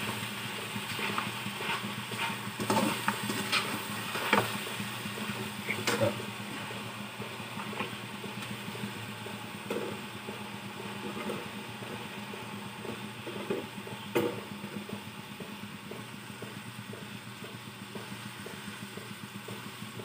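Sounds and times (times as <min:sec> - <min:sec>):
steady low hum: 0:00.0 - 0:20.0
metal spatula scraping frying pan: 0:00.9 - 0:04.3.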